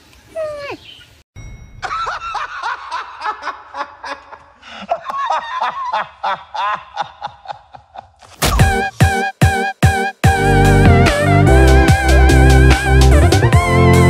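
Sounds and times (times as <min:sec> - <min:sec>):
man laughing: 0:01.8 - 0:08.3
loud music with guitar: 0:10.3 - 0:14.0.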